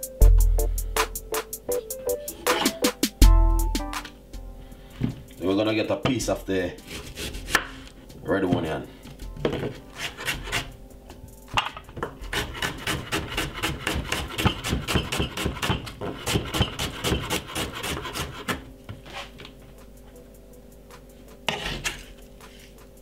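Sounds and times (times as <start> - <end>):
knife chopping on wooden board: 6.9 - 7.7, 9.4 - 10.7, 11.6 - 18.6.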